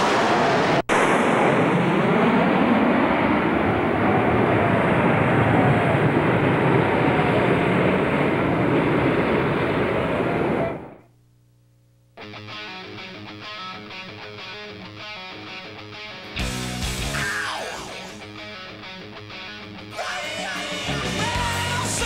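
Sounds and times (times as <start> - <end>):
jet aircraft roaring overhead: 0.0 - 11.0, 17.2 - 18.8.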